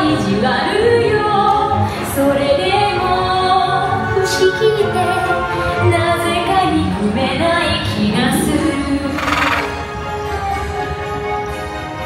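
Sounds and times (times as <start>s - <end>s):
woman singing: 0.0s - 9.2s
music: 0.0s - 12.0s.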